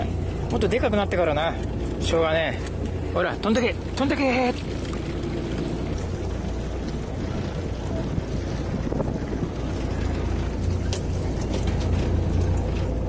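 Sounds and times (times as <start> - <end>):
boat low rumble: 0.0 - 13.0
wind on microphone: 4.5 - 13.0.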